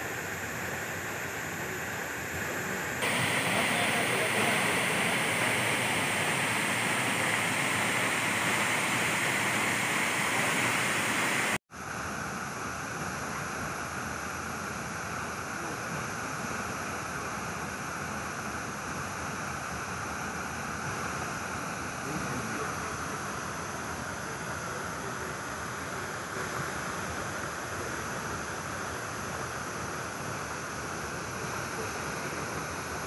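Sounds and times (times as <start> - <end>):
waterfall rushing: 3.0 - 11.6.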